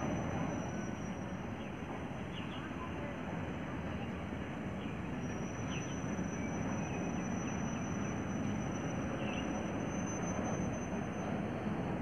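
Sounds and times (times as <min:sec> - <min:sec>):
thin high whine: 0:00.0 - 0:01.8, 0:05.2 - 0:12.0
freight train rumbling past: 0:00.0 - 0:12.0
faint bird chirps: 0:04.8 - 0:11.4.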